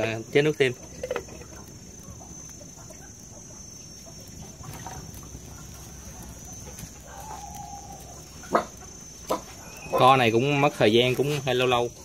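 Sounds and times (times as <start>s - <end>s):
chickens clucking faintly: 0.0s - 12.0s
low steady background noise: 0.0s - 12.0s
drawn-out hen call: 0.8s - 10.2s.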